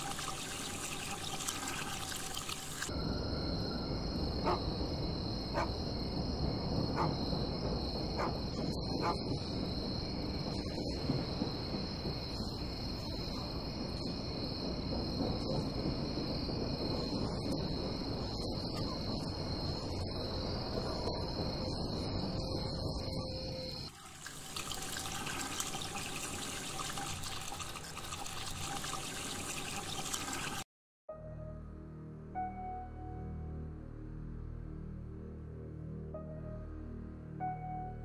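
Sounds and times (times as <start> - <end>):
crickets chirring: 2.9 - 27.7.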